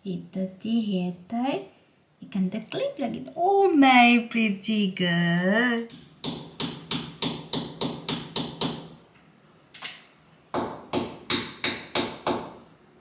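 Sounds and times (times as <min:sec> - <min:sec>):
hammer tapping a nail: 0:05.9 - 0:08.9, 0:10.5 - 0:12.6.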